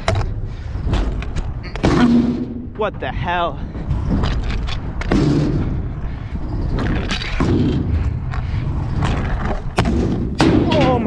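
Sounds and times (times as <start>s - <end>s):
scooter wheels rumbling on ramp: 3.7s - 11.0s.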